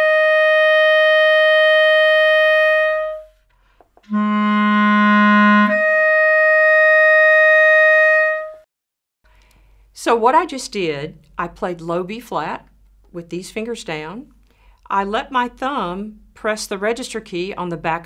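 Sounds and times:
clarinet holding notes: 0:00.0 - 0:03.4, 0:04.0 - 0:08.6.

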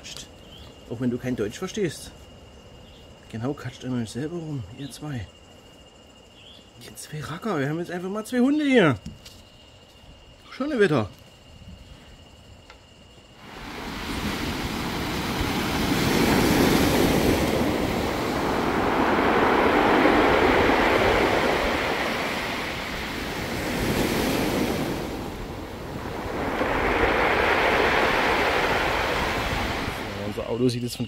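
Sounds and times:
surf breaking on beach: 0:13.4 - 0:30.5.

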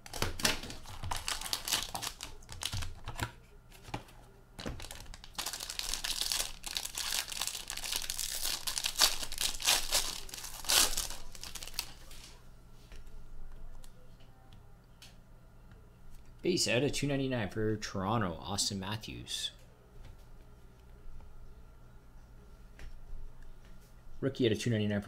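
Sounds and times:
packaging crinkling and tearing: 0:00.0 - 0:03.3, 0:04.6 - 0:12.3.

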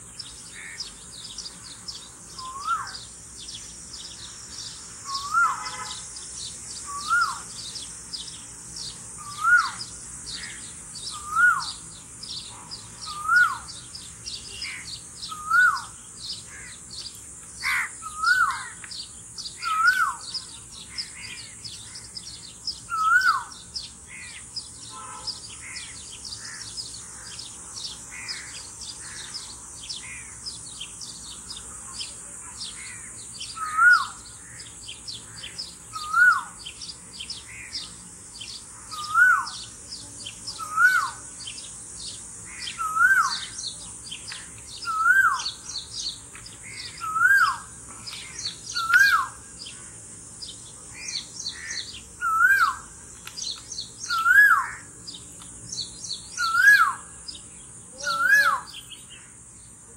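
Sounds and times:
small birds chirping: 0:00.0 - 0:59.9.

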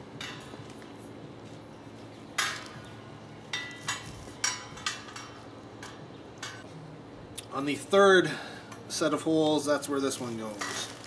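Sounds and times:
metal grating and tubes clinking: 0:10.2 - 0:11.0.

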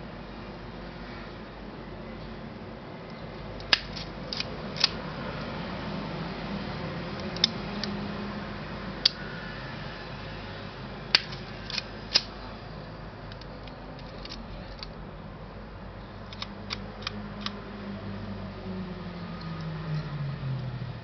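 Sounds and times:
camera mechanical clicks: 0:03.6 - 0:05.0, 0:11.1 - 0:12.3.

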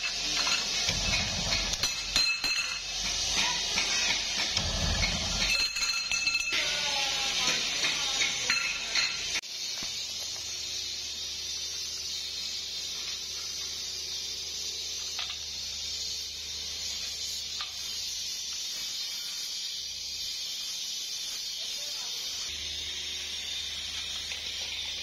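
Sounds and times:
metal pipes clinking: 0:00.0 - 0:06.8, 0:07.4 - 0:09.4
steady hiss: 0:00.0 - 0:25.0.

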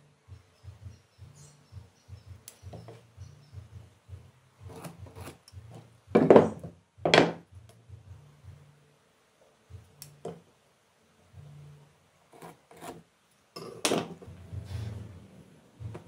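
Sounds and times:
metal tool scraping wood: 0:04.6 - 0:06.6, 0:12.3 - 0:13.1.

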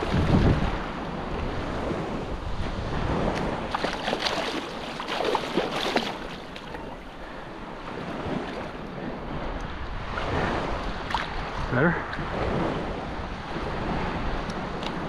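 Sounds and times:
small waves washing over sand: 0:00.0 - 0:15.0
wind buffeting microphone: 0:00.0 - 0:15.0
fish splashing and thrashing: 0:03.3 - 0:07.3.

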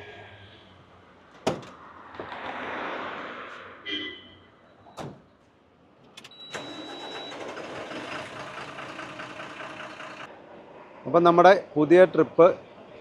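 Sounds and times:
diesel engine starting and idling: 0:06.1 - 0:10.3.

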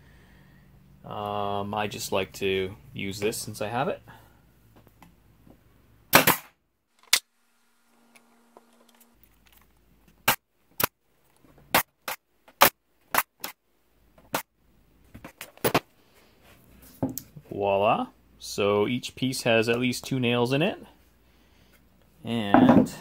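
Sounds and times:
air nailer firing: 0:06.1 - 0:07.2.

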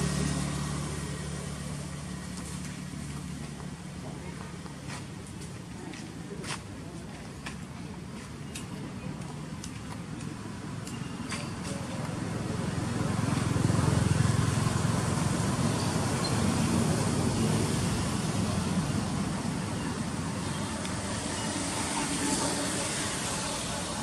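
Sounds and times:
distant vehicle passing: 0:00.0 - 0:02.4, 0:12.0 - 0:24.0.

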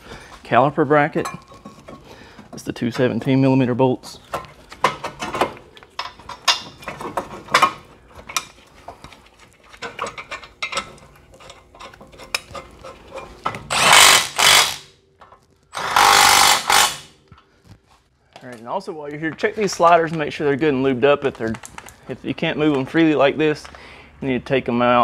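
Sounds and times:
cordless impact wrench: 0:13.7 - 0:14.9, 0:15.7 - 0:17.1.

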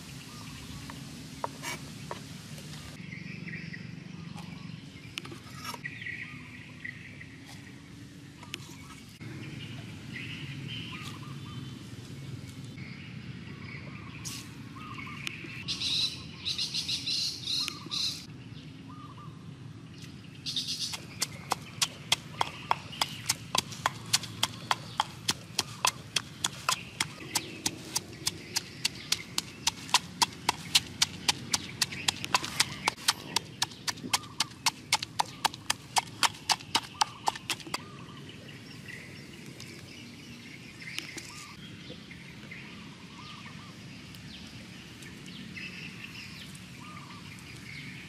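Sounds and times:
pestle pounding in wooden mortar: 0:20.9 - 0:37.8.

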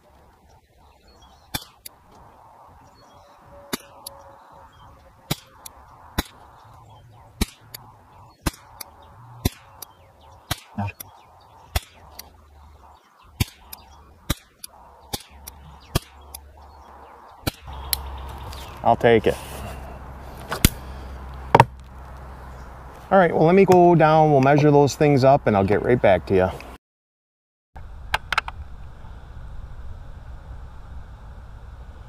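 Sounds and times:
rifle shots cracking: 0:07.4 - 0:07.8, 0:08.4 - 0:08.8, 0:09.4 - 0:09.8, 0:10.5 - 0:10.8, 0:11.7 - 0:12.0, 0:13.4 - 0:16.2.

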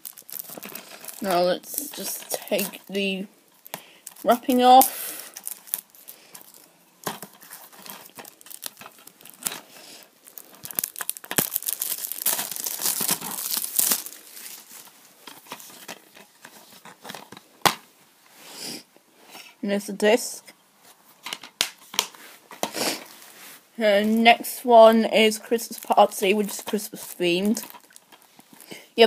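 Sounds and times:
plastic shrink-wrap crinkling: 0:00.0 - 0:17.8, 0:22.9 - 0:29.0.

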